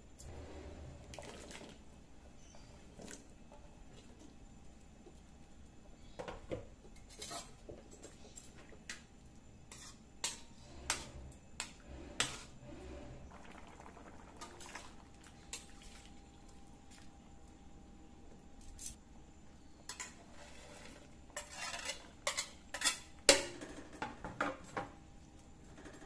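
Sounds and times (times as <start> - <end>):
metal spatula scraping a wok: 7.0 - 7.6, 9.7 - 13.3, 19.9 - 23.1.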